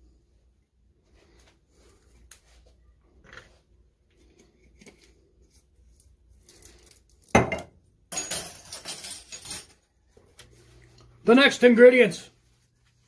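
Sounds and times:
metal spoon and glass clinking: 0:07.3 - 0:09.8
utensils clattering: 0:08.1 - 0:09.9.

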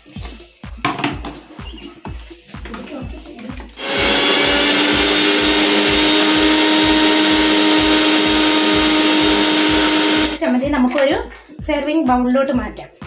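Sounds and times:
mixer grinder motor whining: 0:03.8 - 0:10.4.

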